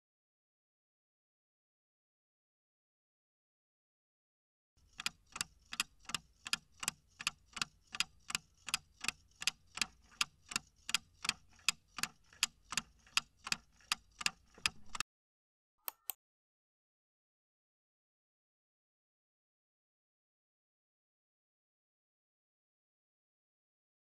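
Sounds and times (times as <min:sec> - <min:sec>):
clock ticking: 0:04.8 - 0:15.0.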